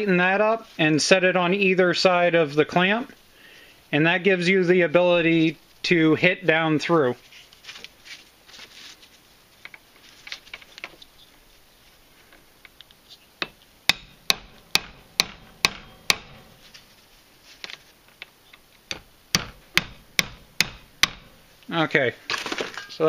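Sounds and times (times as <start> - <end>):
hammer tapping on metal bolt: 13.4 - 16.5, 18.9 - 21.4.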